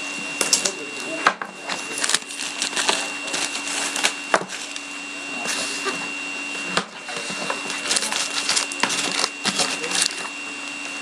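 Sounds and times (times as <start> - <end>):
trading cards and packaging rustling: 1.6 - 4.9, 7.1 - 10.4.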